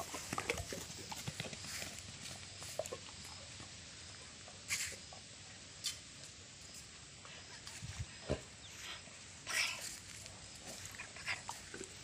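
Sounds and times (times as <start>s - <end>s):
dog paws scrabbling on grass: 0.0s - 3.1s, 9.6s - 12.0s.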